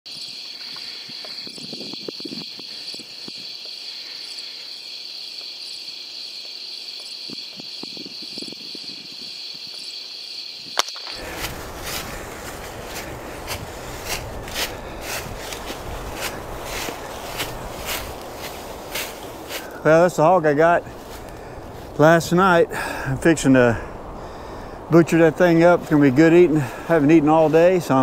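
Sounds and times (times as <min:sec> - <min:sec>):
crickets trilling: 0:00.1 - 0:28.0
sharp crack: 0:10.8 - 0:13.1
dry leaves crunching and scraping: 0:11.0 - 0:19.8.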